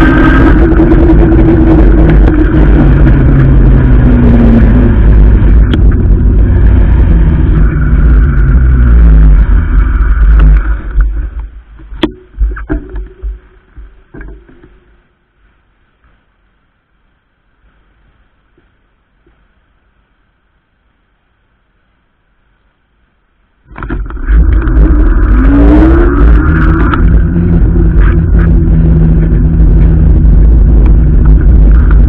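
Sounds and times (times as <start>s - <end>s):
traffic engine noise: 0.0s - 14.6s, 23.7s - 32.0s
wind rumble on microphone: 0.0s - 15.0s, 23.6s - 32.0s.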